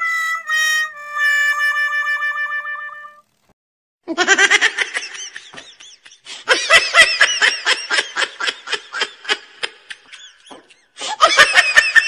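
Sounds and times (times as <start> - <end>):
person laughing: 4.1 - 12.0.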